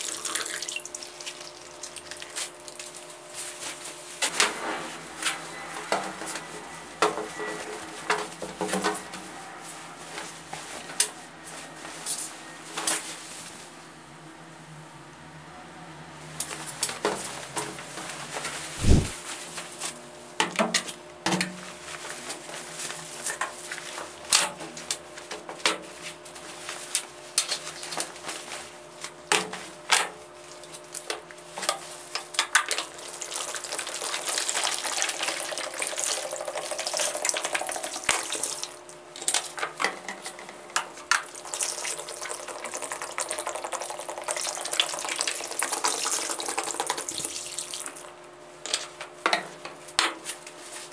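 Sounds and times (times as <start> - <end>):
liquid pouring into plastic basin: 33.1 - 38.8, 41.2 - 48.0.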